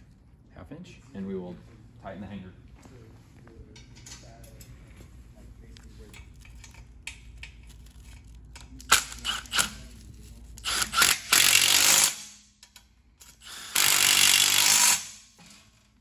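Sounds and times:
impact driver bursts: 8.9s - 9.8s, 10.6s - 12.4s, 13.2s - 15.3s.

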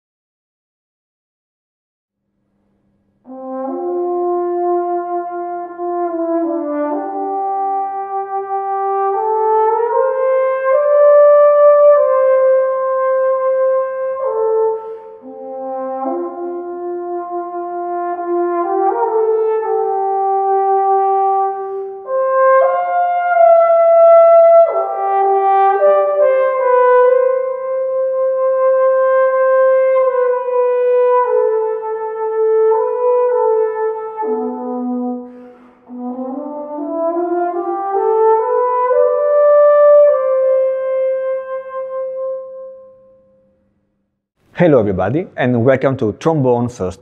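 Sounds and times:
trombone slow melody: 3.2s - 43.4s.

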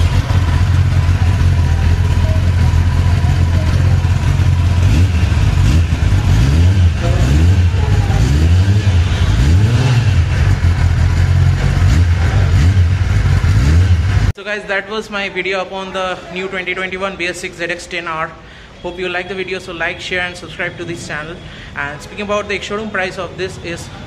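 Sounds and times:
motorcycle engine idling and revving: 0.0s - 14.4s.

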